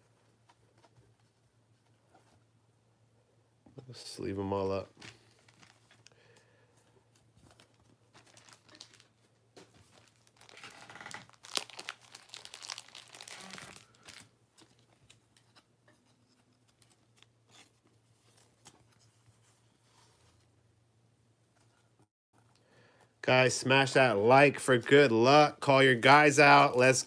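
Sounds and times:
cellophane wrapper crinkling and tearing: 5.0 - 6.1, 7.5 - 15.2.

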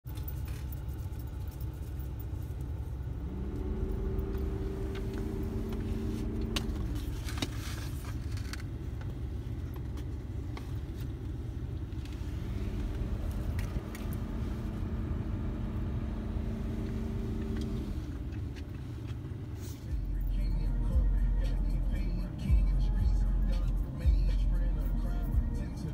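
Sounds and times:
engine rumble inside vehicle: 0.0 - 25.9
hum: 0.1 - 18.7
rustling: 4.8 - 14.6.

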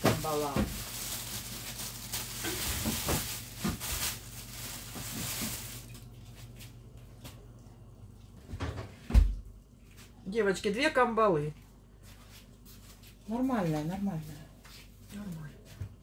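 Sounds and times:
packaged frozen fish rustling: 0.0 - 6.6.

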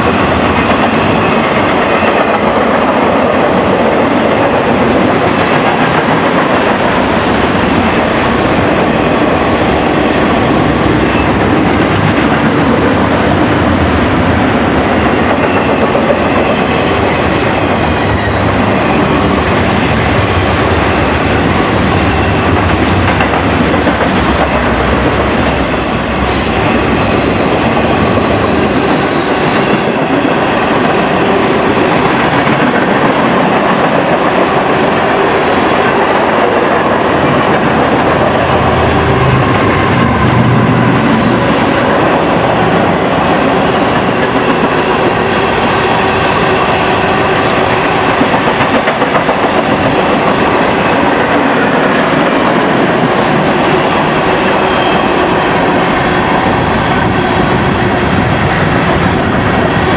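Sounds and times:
train wheels rumbling on rails: 0.0 - 59.9
high wheel squeals: 15.4 - 19.6, 24.5 - 31.8, 42.4 - 46.8.

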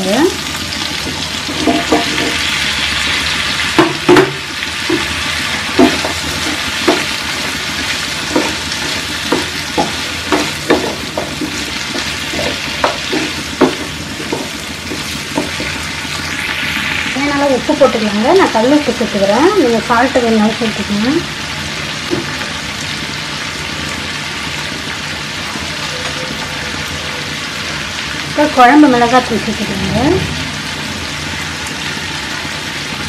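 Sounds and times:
food sizzling in hot oil: 0.0 - 33.0
wooden spatula scraping a pan: 8.2 - 16.4.

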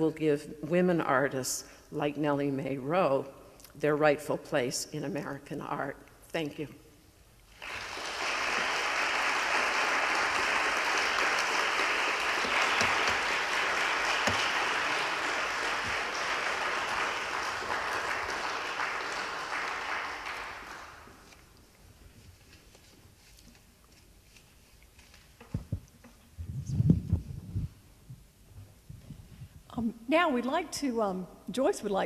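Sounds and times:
audience applauding: 7.5 - 21.4.

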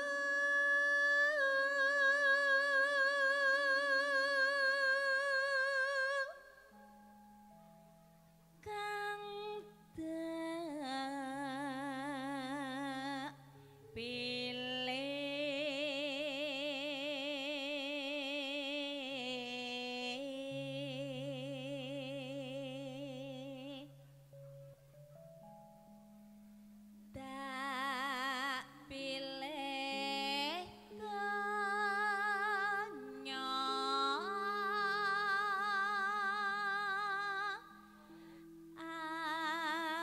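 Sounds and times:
woman singing with vibrato: 0.0 - 6.8, 8.6 - 13.4, 14.0 - 24.0, 27.2 - 40.0
low sustained accompaniment notes: 20.3 - 40.0.

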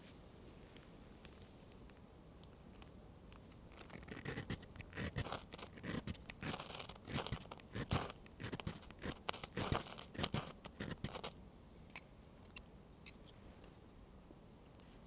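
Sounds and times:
tinder crackling: 1.2 - 11.4
ferro rod scraping: 3.7 - 11.3.

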